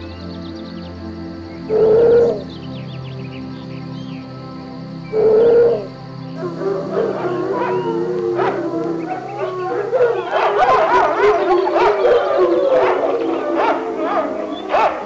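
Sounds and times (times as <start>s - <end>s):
huskies howling: 1.6s - 2.7s, 5.1s - 15.0s
dogs yipping: 5.2s - 15.0s.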